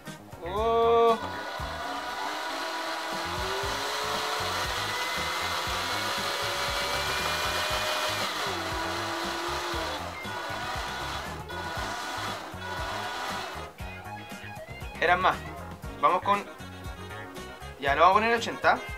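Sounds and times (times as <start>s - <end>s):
small electric motor whine: 1.2s - 13.7s.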